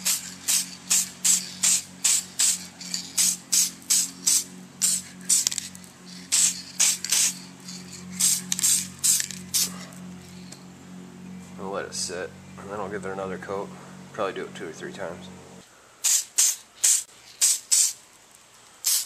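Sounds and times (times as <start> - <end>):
aerosol can spraying: 0.0 - 9.7, 16.0 - 18.0.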